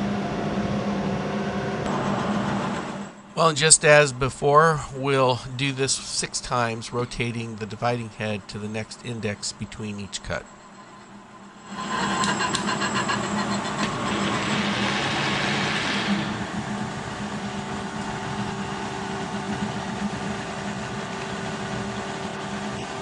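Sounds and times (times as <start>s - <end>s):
milling machine cutting: 11.7s - 23.0s.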